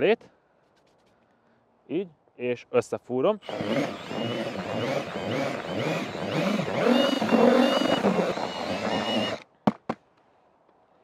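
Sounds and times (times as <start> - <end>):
cordless drill motor whine: 3.4 - 9.4
mixer churning dry mix: 3.4 - 9.4.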